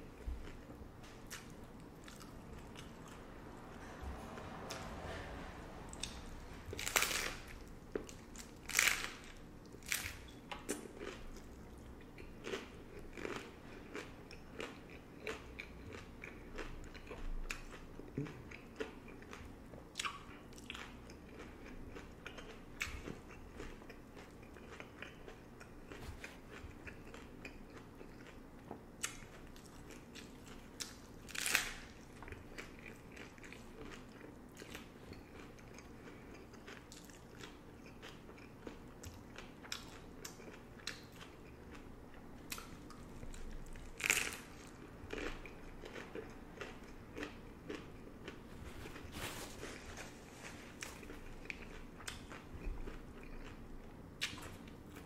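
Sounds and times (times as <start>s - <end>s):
chewing: 0.1s - 55.0s
taco shells crunching: 5.9s - 19.4s, 29.0s - 41.8s, 42.4s - 53.6s.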